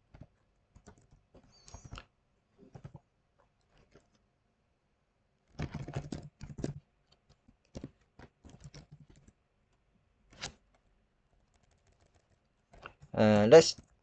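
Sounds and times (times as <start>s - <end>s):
computer keyboard typing: 0.2s - 2.0s, 5.5s - 9.4s, 11.4s - 14.0s.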